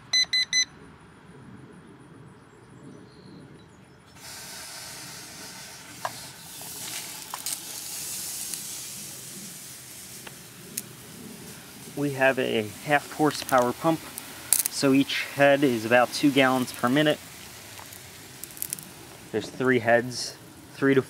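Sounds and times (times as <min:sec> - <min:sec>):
sprinkler heads spraying water: 0:04.2 - 0:21.0.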